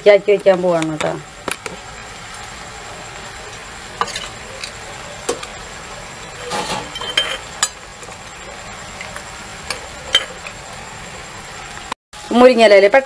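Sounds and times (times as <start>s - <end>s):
clinks of metal and glass: 6.6s - 7.8s.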